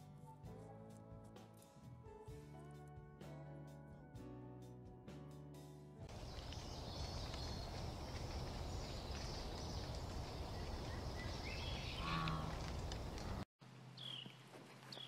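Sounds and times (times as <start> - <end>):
steady woodland hiss: 6.1 - 13.3.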